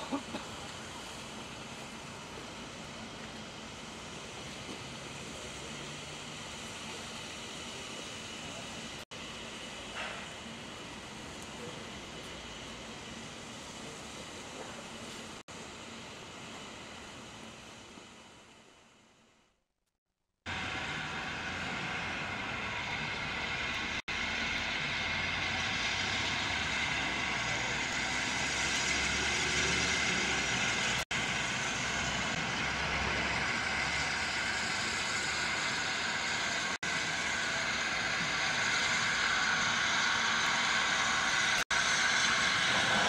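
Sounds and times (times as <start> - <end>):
steam hissing: 0.0 - 18.8, 20.5 - 43.0
locomotive low rumble: 20.5 - 43.0.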